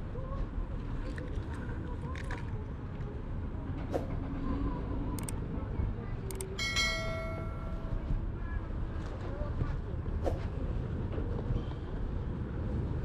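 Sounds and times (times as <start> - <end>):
traffic rumble: 0.0 - 13.0
bright ringing tone: 6.6 - 8.0.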